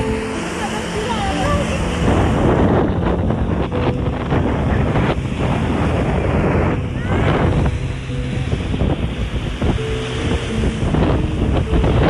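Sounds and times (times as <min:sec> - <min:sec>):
waves breaking on sand: 0:00.0 - 0:12.0
wind buffeting microphone: 0:00.0 - 0:12.0.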